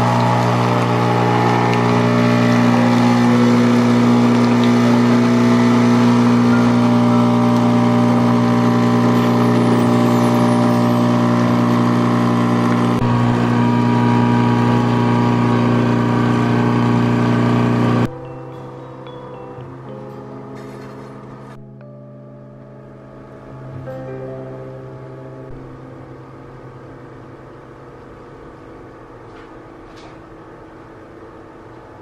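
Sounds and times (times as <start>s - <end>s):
water stream into mug: 0.0s - 13.5s
coffee maker pump humming: 0.0s - 18.1s.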